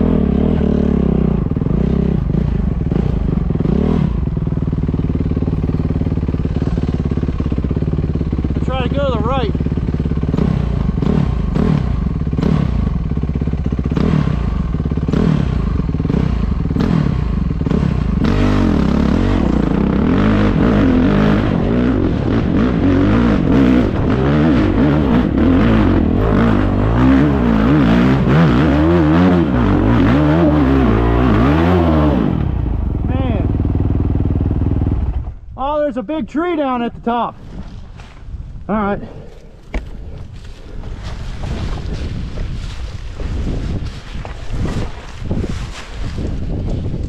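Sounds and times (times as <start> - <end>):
dirt bike engine revving: 0.0 - 35.4
bike knocking and rattling: 1.5 - 18.3, 39.2 - 47.0.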